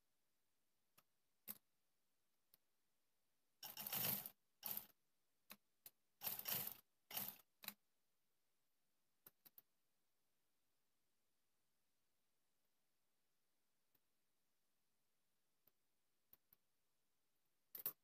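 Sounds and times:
sewing machine clicks: 0:03.6 - 0:05.0, 0:06.2 - 0:07.8
sewing machine stitching: 0:03.6 - 0:05.0, 0:06.2 - 0:07.6.

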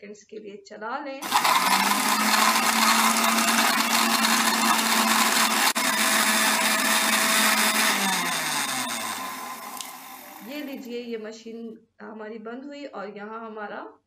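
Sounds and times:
liquid churning: 0:01.2 - 0:10.6
blender motor running: 0:01.2 - 0:10.8.

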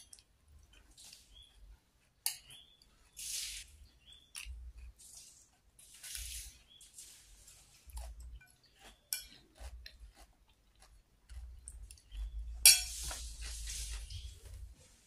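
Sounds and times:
chewing: 0:00.0 - 0:15.0
metal spoon clinking on plate: 0:12.6 - 0:13.0.

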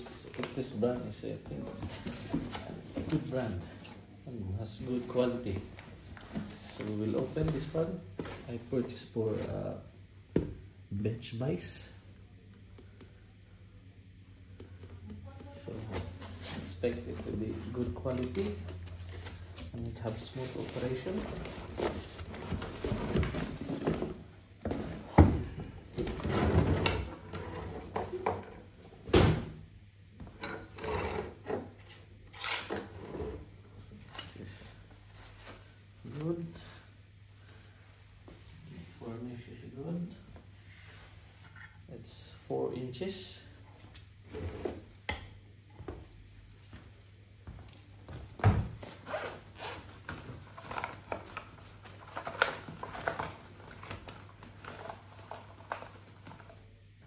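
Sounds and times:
cardboard and plastic rustling: 0:00.1 - 0:03.9, 0:04.8 - 0:09.0, 0:15.6 - 0:26.6, 0:48.8 - 0:56.4.

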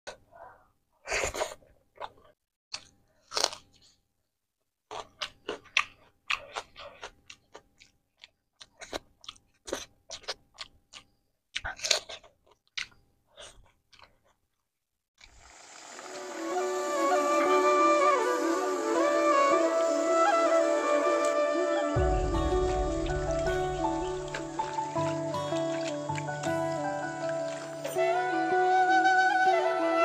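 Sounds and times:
person chewing wetly: 0:01.9 - 0:04.0, 0:04.8 - 0:14.6, 0:24.3 - 0:27.7.

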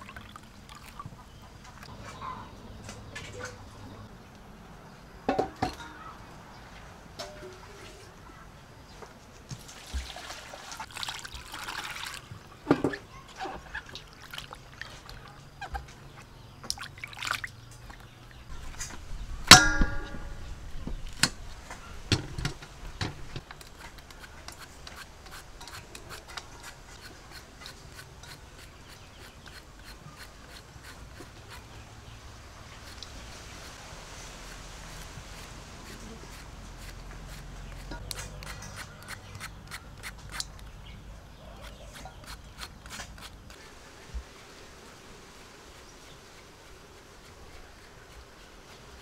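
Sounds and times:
liquid trickling into bowl: 0:00.0 - 0:01.2, 0:09.7 - 0:12.3
steel bowl clanking and ringing: 0:19.5 - 0:20.5
quick clicks and scrapes of peeling: 0:22.4 - 0:31.8, 0:34.4 - 0:40.8, 0:41.6 - 0:43.6.

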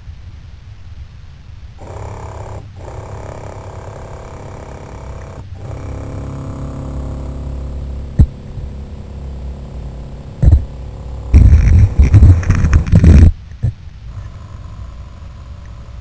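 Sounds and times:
loud rumbling churning: 0:01.8 - 0:13.3
electric motor humming underwater: 0:01.8 - 0:13.4, 0:14.1 - 0:16.0
knocks: 0:08.1 - 0:08.7, 0:10.4 - 0:10.8.

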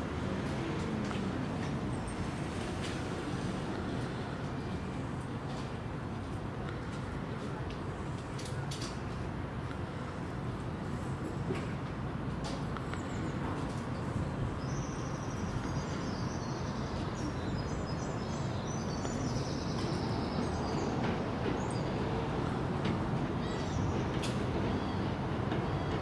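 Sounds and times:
train low rumble: 0:00.0 - 0:26.0
birds chirping: 0:14.0 - 0:22.6, 0:23.2 - 0:26.0.

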